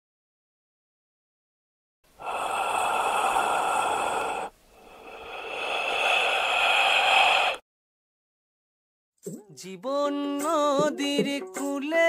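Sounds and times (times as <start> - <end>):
man breathing while smoking: 2.1 - 7.6.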